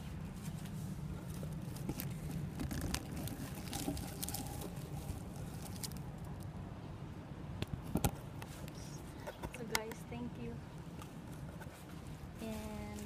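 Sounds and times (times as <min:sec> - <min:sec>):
leaves brushing against microphone: 0:00.0 - 0:06.1, 0:11.7 - 0:13.0.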